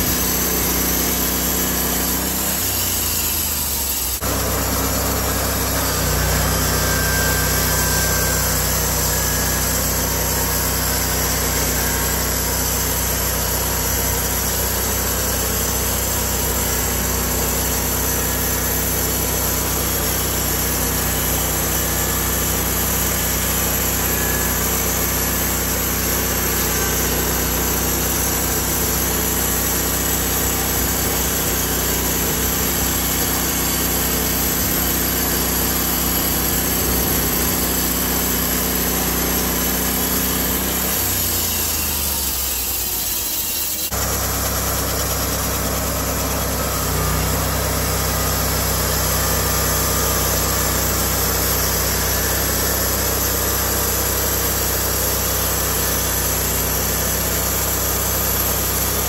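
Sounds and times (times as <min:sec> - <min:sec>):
band blade sawing through wood: 0:00.0 - 0:44.2
sawmill gasoline engine running: 0:00.0 - 0:59.0.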